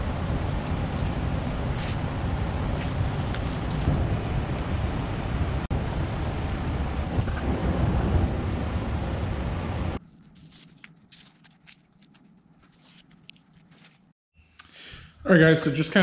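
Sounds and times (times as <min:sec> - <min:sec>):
rushing noise with low rumble: 0:00.0 - 0:10.0.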